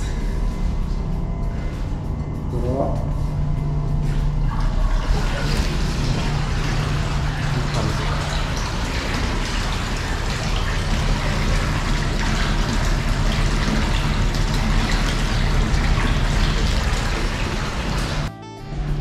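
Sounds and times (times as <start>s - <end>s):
low hum: 0.0s - 19.0s
water running into bath: 4.4s - 18.3s.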